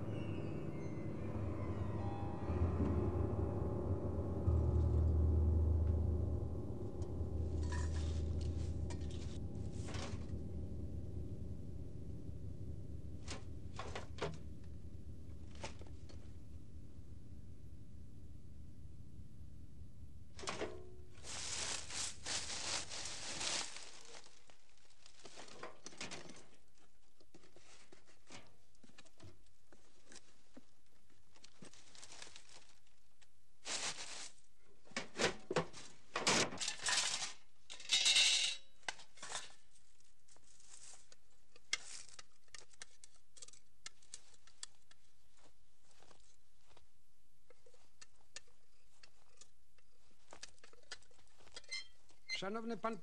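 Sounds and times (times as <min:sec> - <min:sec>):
junk rustling and clattering: 0:02.8 - 0:16.5, 0:20.3 - 0:26.8.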